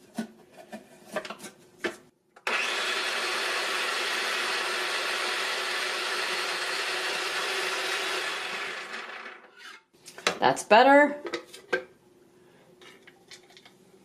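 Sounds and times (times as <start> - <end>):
food processor motor running: 2.4 - 9.5.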